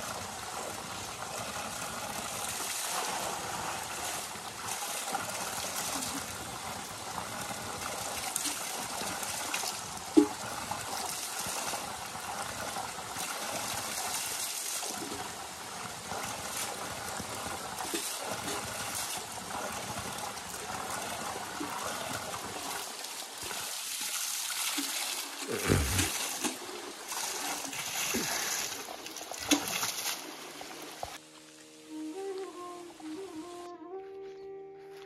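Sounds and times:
water splashing onto rocks: 0:23.9 - 0:31.2.

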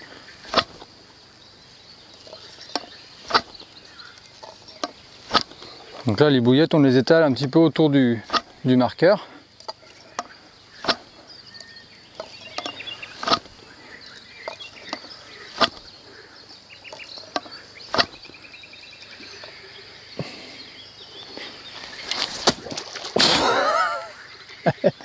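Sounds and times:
throwing stick swishing: 0:00.5 - 0:00.8, 0:05.3 - 0:05.6, 0:13.2 - 0:13.6, 0:15.5 - 0:15.8, 0:22.0 - 0:23.6.

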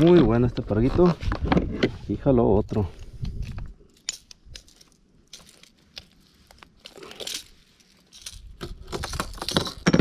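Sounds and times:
fish and lure rustling: 0:03.0 - 0:09.8.

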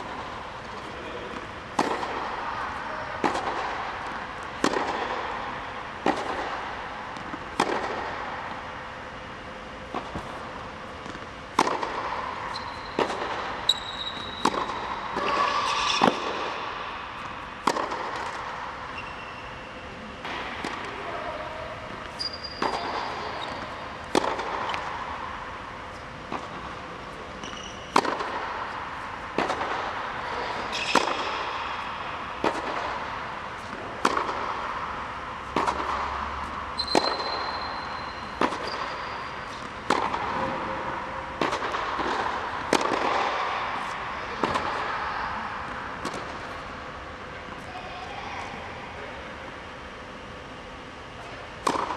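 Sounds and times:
shoes squeaking on court: 0:12.4 - 0:16.0, 0:18.8 - 0:19.9, 0:21.9 - 0:23.9, 0:27.3 - 0:28.1, 0:30.2 - 0:31.4, 0:36.7 - 0:39.8.

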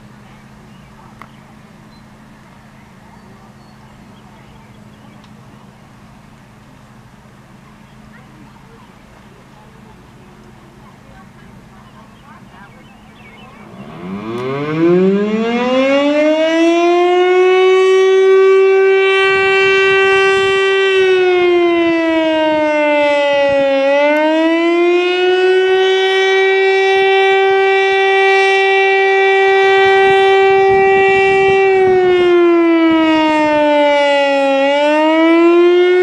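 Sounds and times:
mechanical fire siren wailing: 0:13.2 - 0:36.0.

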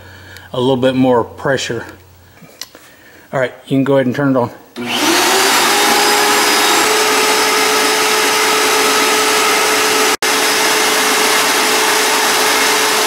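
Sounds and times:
shop vac whining: 0:04.8 - 0:13.0.

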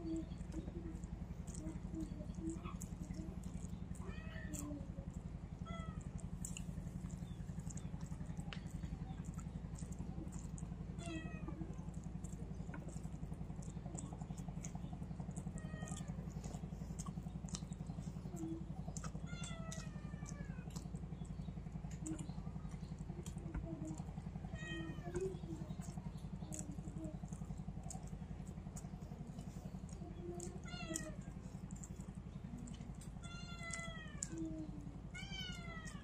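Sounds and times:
low hum: 0:00.0 - 0:36.0
cat meowing: 0:11.0 - 0:11.6, 0:24.5 - 0:25.4, 0:33.2 - 0:34.4, 0:35.1 - 0:36.0.

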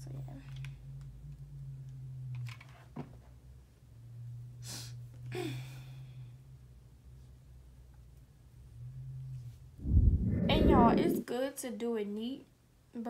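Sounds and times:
low hum: 0:09.8 - 0:11.3.

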